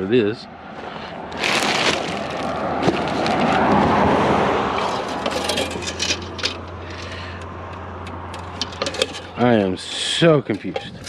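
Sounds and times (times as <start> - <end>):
vehicle passing by: 0.4 - 10.4
metal plate clicks and rattles: 4.7 - 9.6, 10.4 - 11.0.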